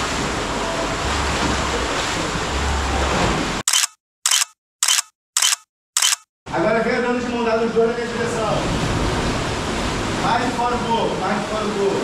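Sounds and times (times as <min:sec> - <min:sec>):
sea surf in cave: 0:00.0 - 0:03.6, 0:07.2 - 0:12.0
camera shutter clicks: 0:03.7 - 0:06.3.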